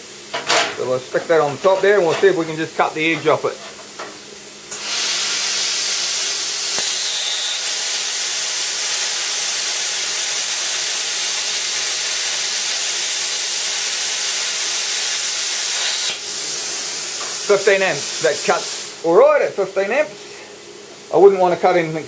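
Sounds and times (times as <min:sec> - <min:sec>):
plasma cutter hissing: 0:04.7 - 0:19.1.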